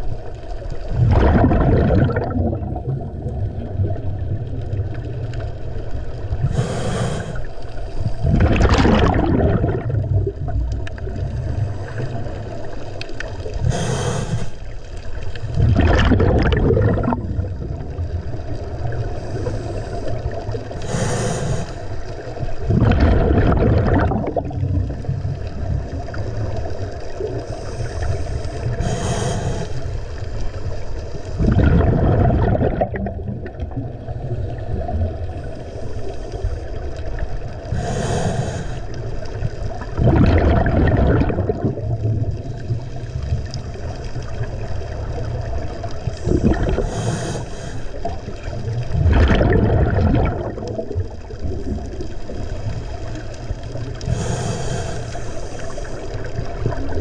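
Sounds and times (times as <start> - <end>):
exhaled bubbles underwater: 0.0 - 57.0
regulator inhale hiss: 6.4 - 8.2, 13.6 - 14.8, 19.0 - 22.4, 27.4 - 31.4, 34.0 - 36.8, 37.6 - 39.3, 46.2 - 48.2, 53.9 - 56.2.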